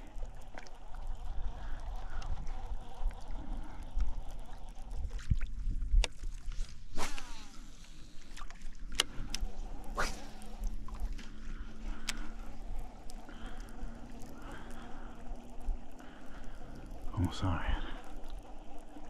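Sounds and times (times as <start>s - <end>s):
wind rumble on microphone: 0.0s - 7.5s
reel being wound in: 0.0s - 19.0s
reel spool whirring: 0.0s - 19.0s
fishing rod swish: 6.9s - 7.6s, 9.4s - 10.7s.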